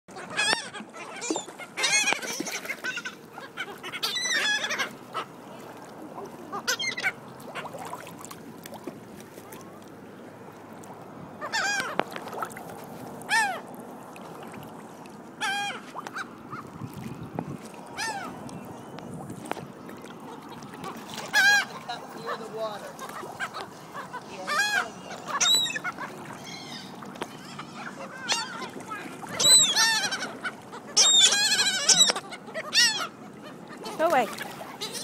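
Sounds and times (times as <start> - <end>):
water sloshing and splashing: 0.1 - 35.0
squeaky pitched calls: 24.4 - 28.6, 29.3 - 30.4, 31.0 - 33.1.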